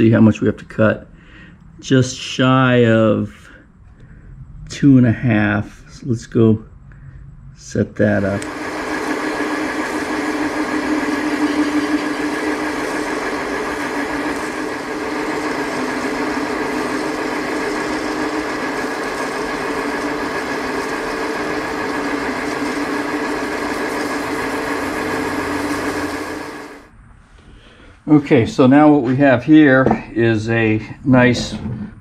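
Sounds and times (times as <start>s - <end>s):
metal lathe motor whine: 8.2s - 26.9s.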